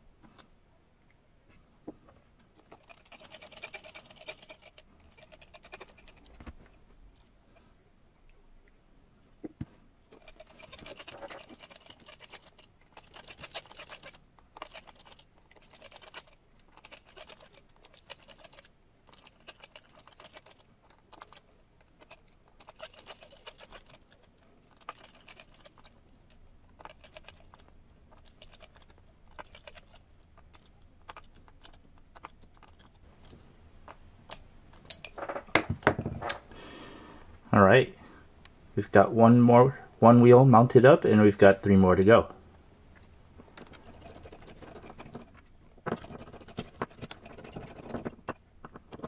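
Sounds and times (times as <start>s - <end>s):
hex driver clicking and scratching: 2.6s - 6.4s, 10.1s - 35.2s, 43.0s - 49.0s.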